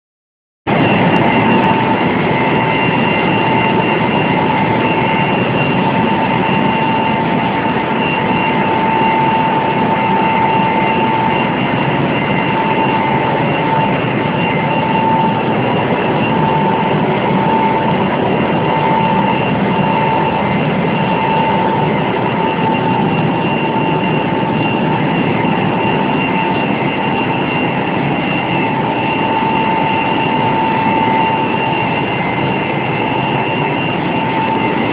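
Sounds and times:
constant whine: 0.7s - 34.9s
cooling tower rushing: 0.7s - 34.9s.

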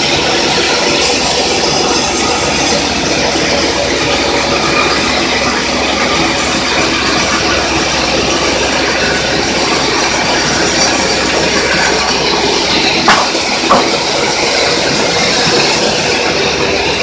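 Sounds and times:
band sawmill cutting wood: 0.0s - 17.0s.

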